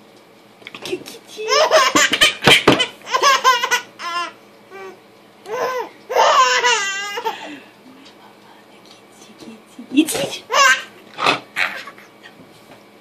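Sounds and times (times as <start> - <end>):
baby laughing: 1.4 - 7.5, 10.4 - 12.1.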